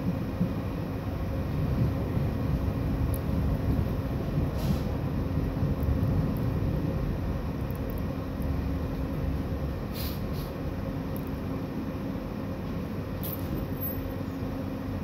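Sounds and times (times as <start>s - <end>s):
tram wheels rumbling: 0.0s - 15.0s
brief hisses: 4.6s - 4.9s, 9.9s - 10.6s.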